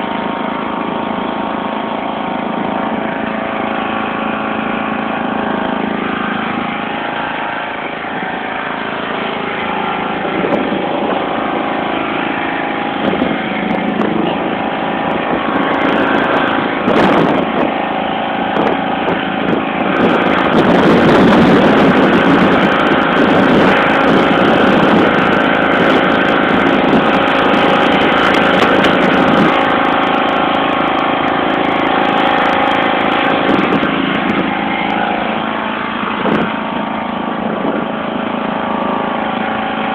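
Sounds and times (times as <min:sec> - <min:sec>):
lawn tractor engine running: 0:00.0 - 0:39.9.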